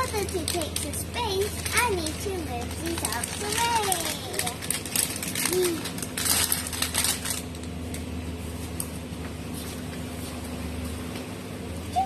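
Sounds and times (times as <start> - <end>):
snack packets crinkling and clattering: 0.0 - 8.0.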